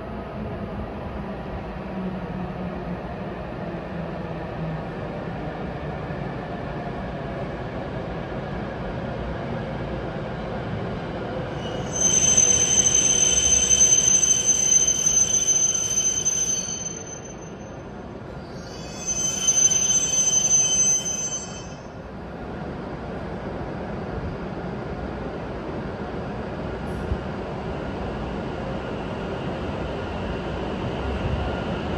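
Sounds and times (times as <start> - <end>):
high brake squeal: 11.5 - 22.0.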